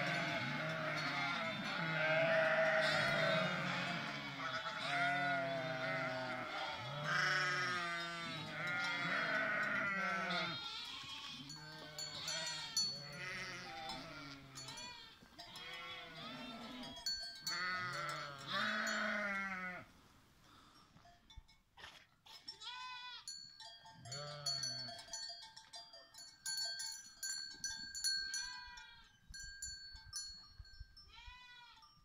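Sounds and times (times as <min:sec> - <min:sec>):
sheep and lambs bleating: 0:00.0 - 0:19.9, 0:22.3 - 0:23.4, 0:24.0 - 0:25.0, 0:28.3 - 0:29.2, 0:31.1 - 0:31.9.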